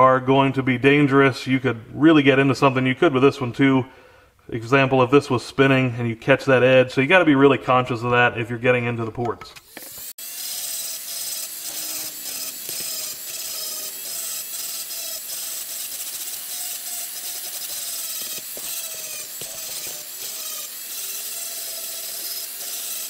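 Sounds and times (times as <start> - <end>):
rotary tool grinding metal: 9.6 - 23.0.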